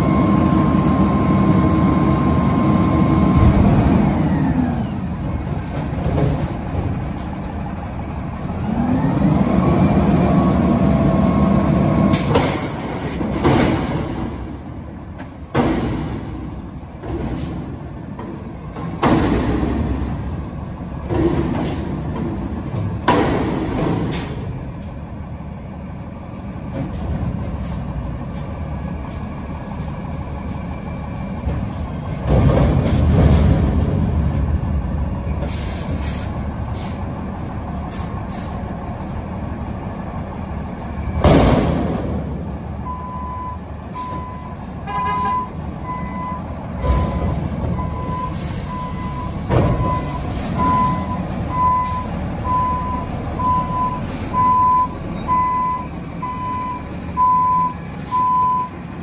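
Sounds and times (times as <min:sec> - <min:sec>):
garbage truck engine revving: 0:00.0 - 0:24.8
loud metal bangs: 0:15.5 - 0:17.9, 0:18.8 - 0:24.6, 0:41.1 - 0:42.5.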